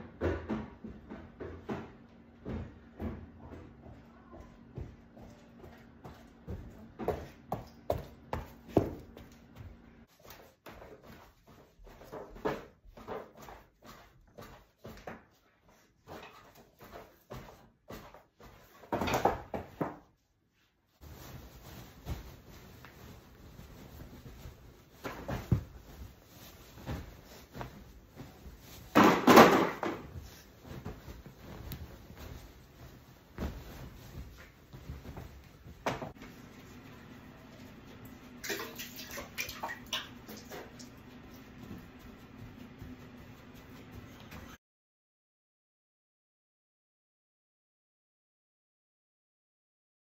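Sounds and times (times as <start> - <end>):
fabric rustling: 20.7 - 29.0, 30.0 - 36.8
body thumping on bed: 21.3 - 36.1.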